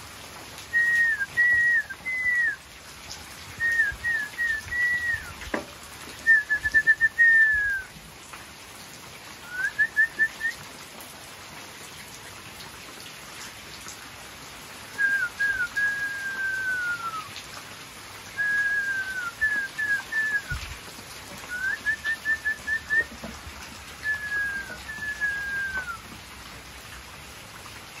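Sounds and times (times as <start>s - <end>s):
whistled song: 0.7s - 2.6s, 3.6s - 5.4s, 6.2s - 7.9s, 9.4s - 10.6s, 15.0s - 17.3s, 18.4s - 20.7s, 21.5s - 23.2s, 24.0s - 26.0s.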